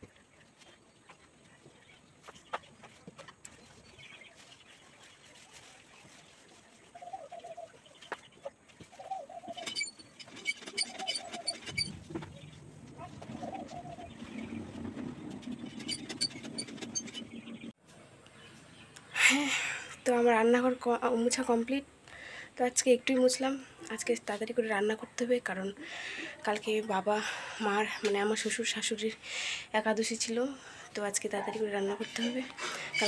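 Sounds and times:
dove cooing: 0:13.0 - 0:14.2.

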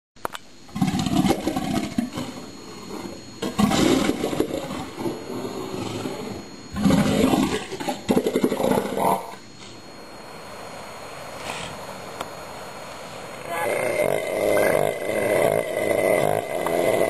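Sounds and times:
elephant seal roaring: 0:03.4 - 0:09.4, 0:13.5 - 0:17.0.

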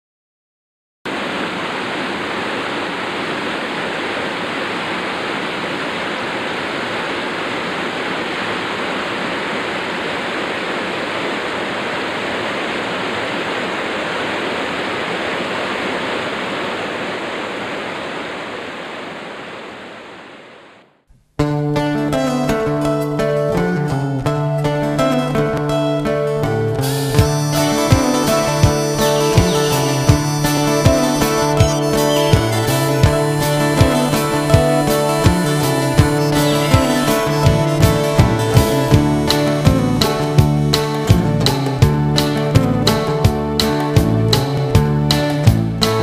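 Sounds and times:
steady rushing noise: 0:01.1 - 0:21.0.

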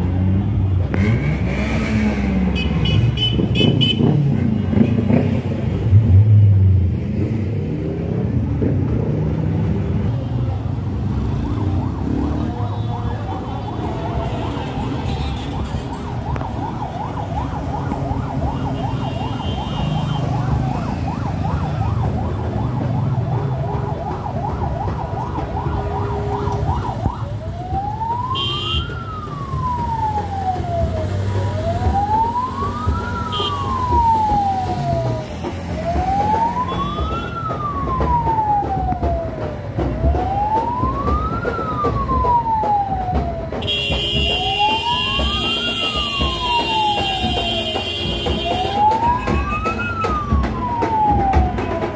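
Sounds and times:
low traffic noise: 0:00.0 - 0:51.9
siren warbling and wailing: 0:11.3 - 0:43.6, 0:44.2 - 0:51.9.

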